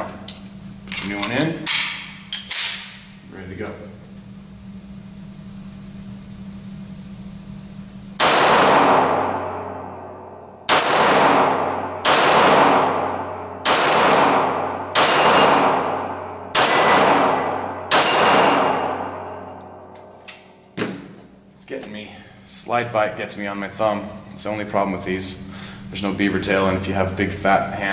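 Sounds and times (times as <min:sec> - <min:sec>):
low steady hum: 0:00.0 - 0:27.9
pistol shots echoing: 0:08.2 - 0:19.8.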